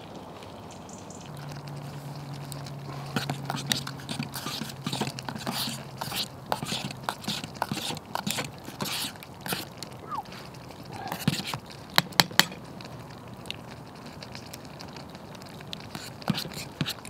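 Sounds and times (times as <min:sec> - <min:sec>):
crackling campfire: 0:00.0 - 0:17.0
sharp taps on pot: 0:11.1 - 0:12.6.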